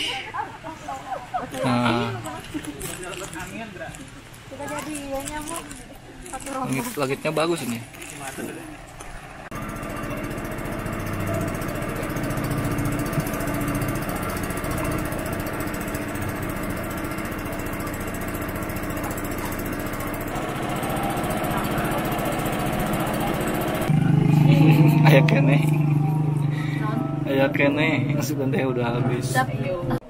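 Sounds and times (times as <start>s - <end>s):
small boat motor running: 7.5s - 30.0s.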